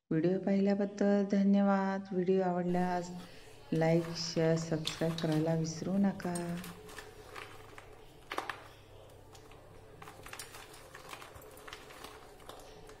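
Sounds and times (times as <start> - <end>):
crisp snack crackling on steel plate: 2.9 - 13.0.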